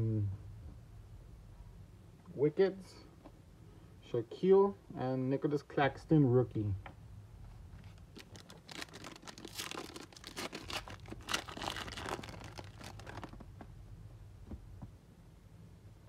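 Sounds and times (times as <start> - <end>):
wrapper tearing and crinkling: 7.8 - 13.5.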